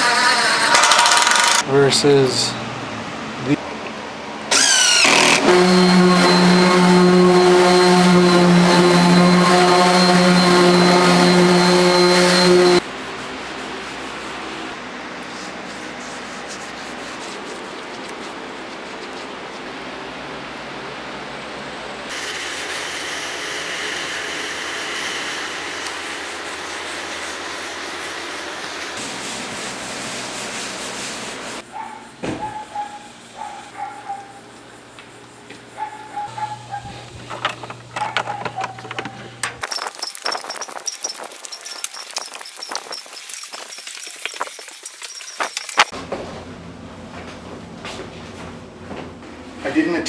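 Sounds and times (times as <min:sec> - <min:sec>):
electric sander running: 0:04.5 - 0:12.8
wood sanding rasp: 0:05.5 - 0:19.2, 0:22.4 - 0:31.6.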